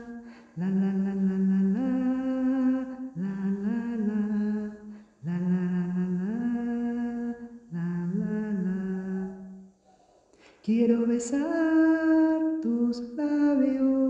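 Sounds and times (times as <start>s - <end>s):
person humming a melody: 0.0s - 9.7s
short breaths: 9.8s - 10.7s.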